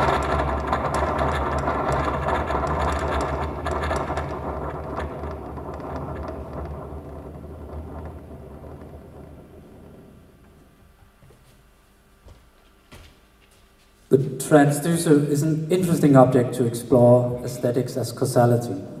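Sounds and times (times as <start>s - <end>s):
electronic crackling: 0.0s - 10.8s.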